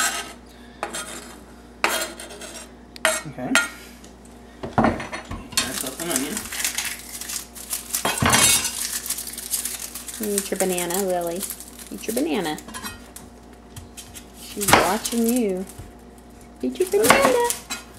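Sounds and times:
knife scraping cutting board: 0:00.0 - 0:03.2
clattering and scraping in bowl: 0:00.0 - 0:03.8.

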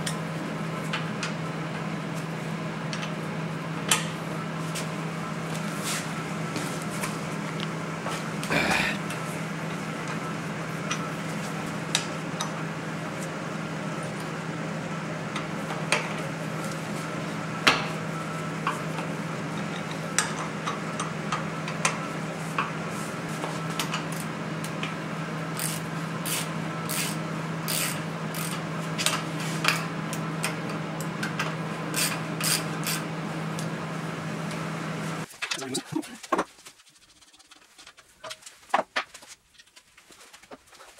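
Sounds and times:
steady low hum: 0:07.1 - 0:09.7.

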